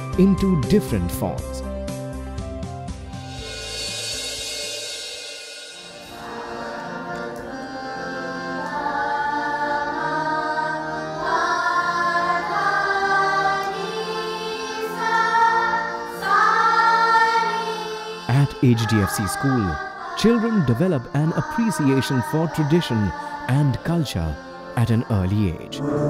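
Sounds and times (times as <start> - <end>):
girls singing together: 6.0 - 25.3
harmonium: 6.1 - 20.7.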